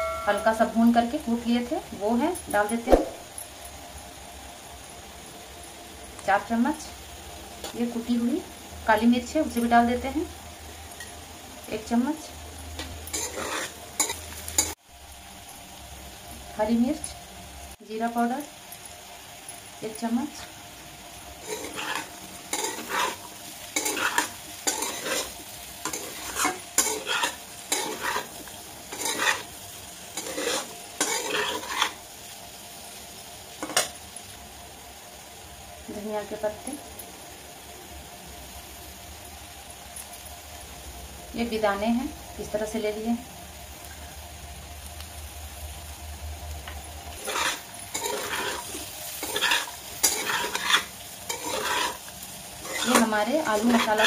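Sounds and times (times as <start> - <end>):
light frying sizzle: 0.0 - 54.0
metal spatula scraping potatoes: 12.8 - 14.8, 21.4 - 32.0, 47.2 - 54.0.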